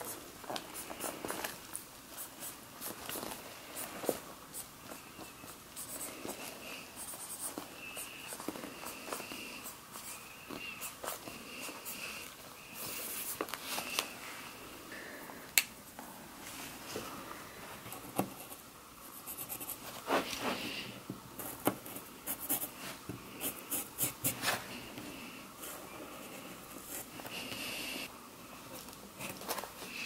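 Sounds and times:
paper and fabric rustling: 0.0 - 4.3.

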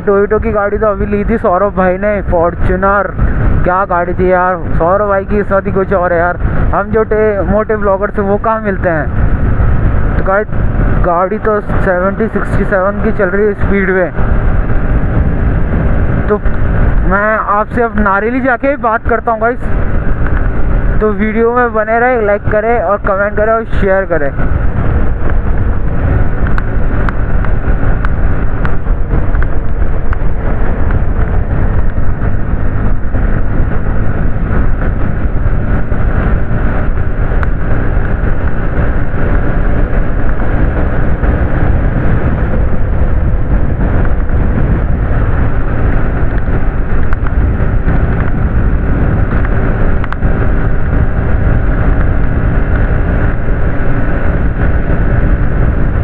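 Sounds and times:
motorcycle engine cruising: 0.0 - 56.0
wind rushing over microphone: 0.0 - 56.0.

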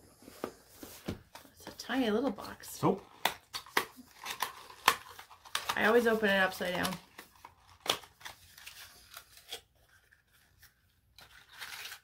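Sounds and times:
packaging rustling: 3.1 - 12.0.

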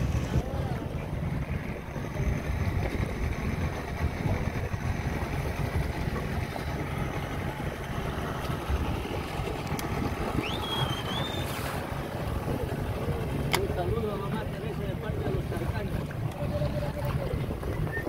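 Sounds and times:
boat motor: 0.0 - 18.0
water rumble: 0.0 - 18.0
wind buffeting microphone: 0.0 - 18.0
high rising whistle: 10.4 - 11.7.

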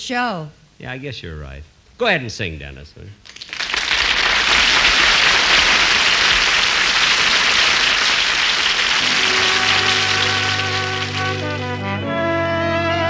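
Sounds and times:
audience applauding: 3.2 - 11.9
orchestra playing: 9.0 - 13.0.

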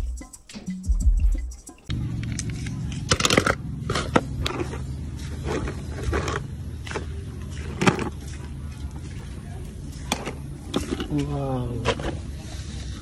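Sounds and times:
low hum: 1.9 - 11.2
toy cars clinking in metal basin: 2.3 - 12.6.

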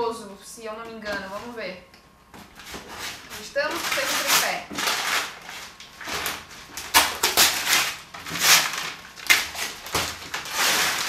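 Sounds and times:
cardboard scraping and rustling: 2.4 - 11.0
scissors cutting packing tape: 2.7 - 11.0.

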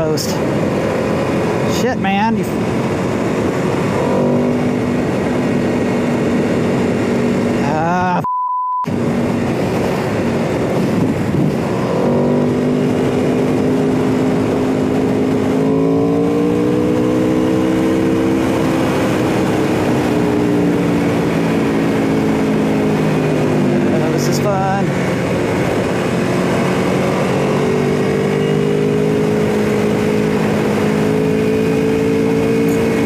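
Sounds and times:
motorcycle engine at speed: 0.0 - 8.2, 8.9 - 33.0
short bleep tone: 8.2 - 8.9
wind rush: 8.9 - 33.0.

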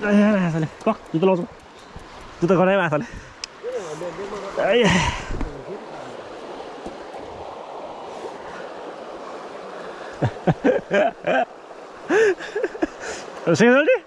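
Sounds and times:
men talking: 0.0 - 8.8, 12.1 - 14.0
creek water rushing: 0.0 - 14.0.

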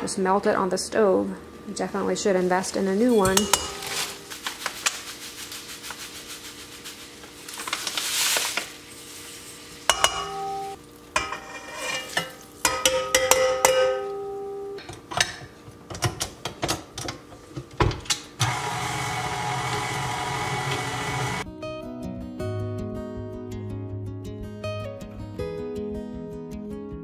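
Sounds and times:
utensils clinking on metal bowl: 3.0 - 4.4, 9.9 - 15.4
pouring from a bag: 3.8 - 8.9
stand mixer motor running: 18.4 - 21.4.

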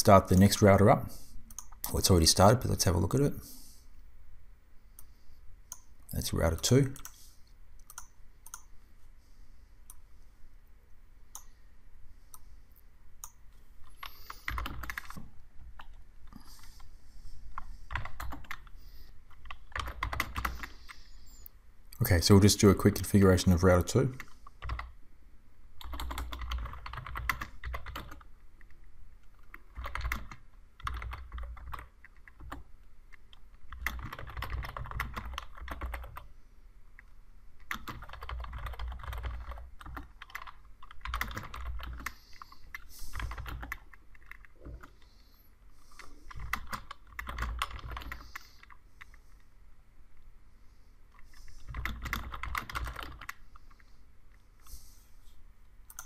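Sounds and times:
computer keyboard typing: 13.2 - 16.8, 17.5 - 21.3, 24.2 - 25.0, 25.8 - 36.3, 37.6 - 45.2, 45.8 - 49.2, 51.2 - 53.8.

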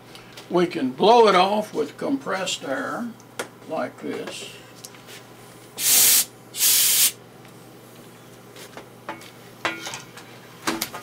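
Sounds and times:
compressed air blasts: 5.8 - 7.2.

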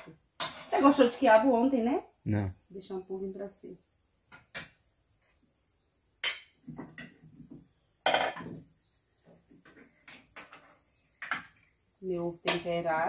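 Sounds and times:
metal spoon clinking on pots: 0.4 - 1.1, 6.2 - 7.1, 8.0 - 8.5, 11.2 - 11.7, 12.4 - 12.9.

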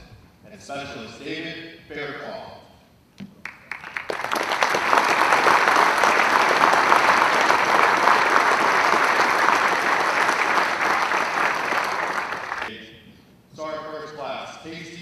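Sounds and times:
audience applauding: 3.4 - 12.7.

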